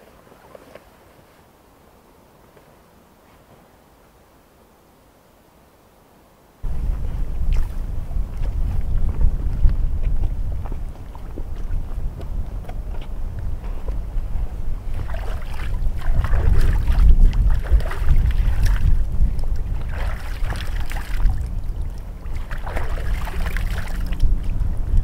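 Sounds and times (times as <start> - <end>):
wind rumble on microphone: 6.6 - 25.0
water splashing from hands: 14.9 - 24.6.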